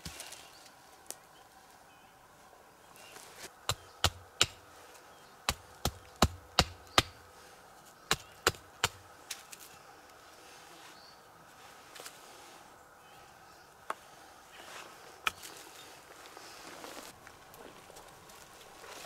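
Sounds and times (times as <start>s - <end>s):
wood chopping strikes: 3.6s - 4.6s, 5.5s - 7.2s, 8.1s - 9.0s.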